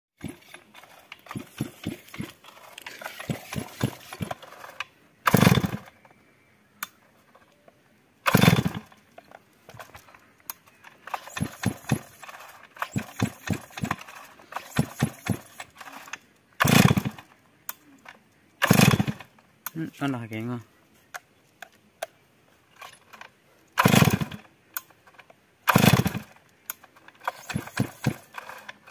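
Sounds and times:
chainsaw recoil starter cranking: 0.2 - 6.0, 8.2 - 19.8, 22.7 - 28.9
chainsaw engine firing briefly: 1.2 - 2.3, 3.0 - 4.4, 5.2 - 5.9, 8.2 - 9.0, 11.1 - 17.3, 18.6 - 19.3, 23.8 - 24.5, 25.7 - 26.4, 27.3 - 28.7.

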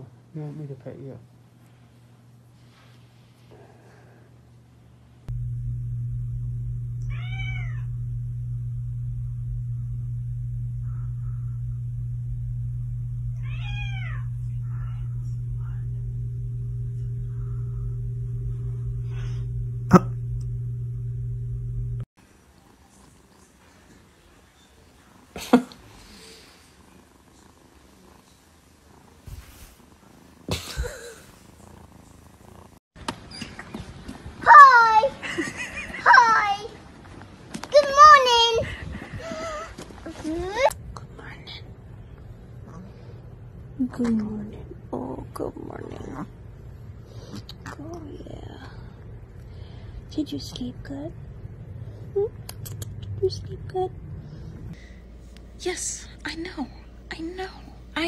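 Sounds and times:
steady low hum: 0.0 - 22.1, 40.7 - 58.0
cat purring: 5.3 - 32.8, 44.6 - 49.1
cat meowing: 7.0 - 7.9, 13.4 - 14.4.

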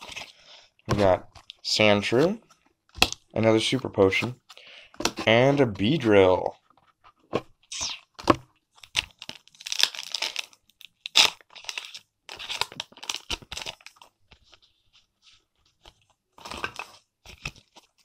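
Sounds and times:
foil wrapper crinkling and tearing: 8.8 - 14.2.

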